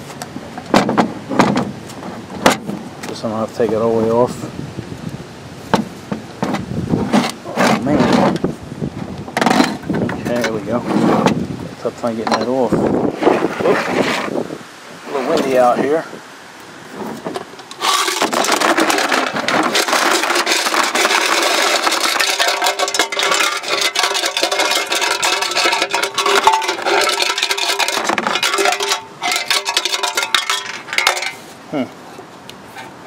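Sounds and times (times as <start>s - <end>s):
nuts rattling in metal tank: 17.6s - 31.5s.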